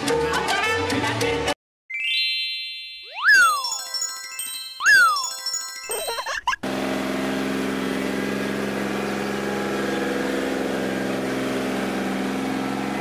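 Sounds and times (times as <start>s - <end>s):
small train engine running: 6.6s - 13.0s.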